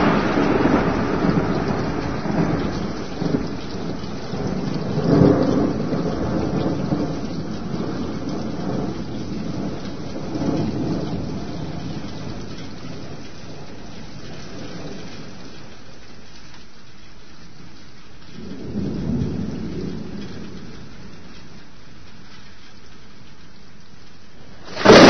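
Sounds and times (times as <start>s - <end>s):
low rolling thunder: 0.0s - 15.5s, 18.4s - 21.6s, 24.6s - 25.0s
steady rain: 0.0s - 25.0s.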